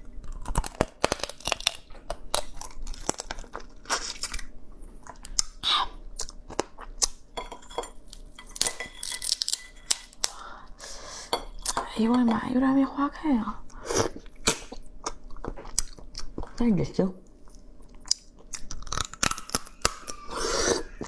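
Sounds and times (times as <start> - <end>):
crab shell cracking and crunching: 0.0 - 7.2, 8.0 - 10.6, 17.6 - 20.2
chewing: 13.7 - 16.6, 17.2 - 21.0.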